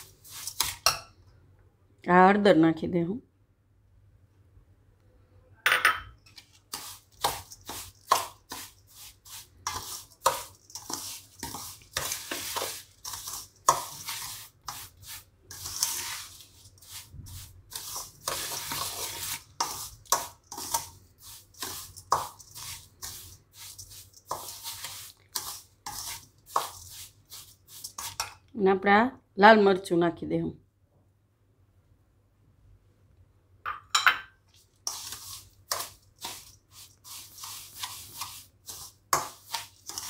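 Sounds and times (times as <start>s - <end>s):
spoon scraping a steel bowl: 0.0s - 1.1s, 6.3s - 28.4s, 34.5s - 40.0s.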